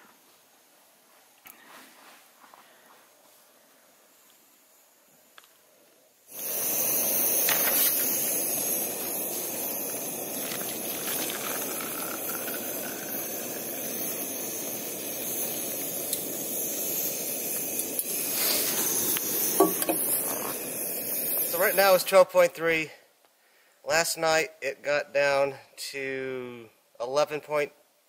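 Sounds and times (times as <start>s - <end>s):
strong steady hiss: 0.0s - 28.0s.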